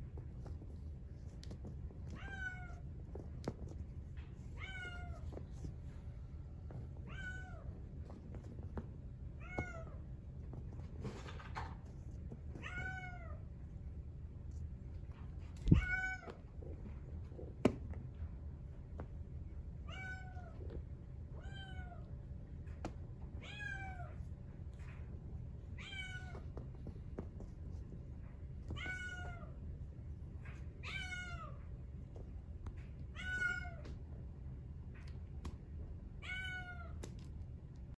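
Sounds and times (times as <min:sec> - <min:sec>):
kitten meowing: 0:15.6 - 0:16.3.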